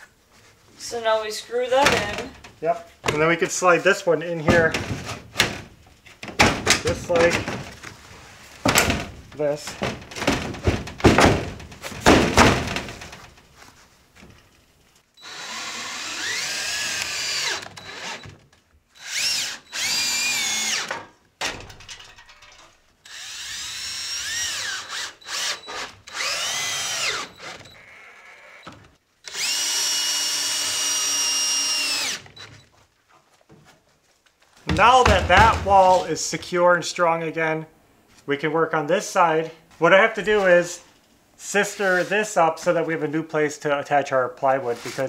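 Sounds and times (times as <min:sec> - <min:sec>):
loud knocks: 0:04.5 - 0:07.8, 0:08.6 - 0:13.3, 0:34.7 - 0:35.9
power drill driving screws: 0:15.2 - 0:21.0, 0:23.0 - 0:27.9, 0:28.6 - 0:32.6.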